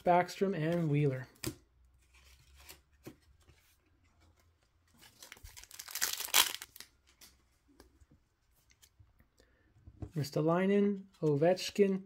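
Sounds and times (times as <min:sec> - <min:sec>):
wrapper tearing open: 0:05.2 - 0:06.9.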